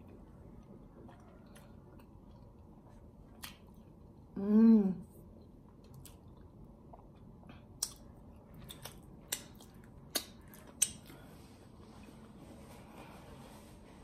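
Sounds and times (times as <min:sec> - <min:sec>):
wet lip smacks and mouth clicks: 0:07.8 - 0:11.2.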